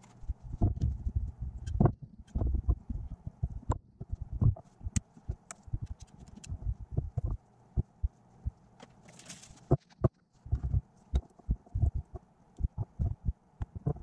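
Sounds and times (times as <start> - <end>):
brief rustle: 8.8 - 10.0.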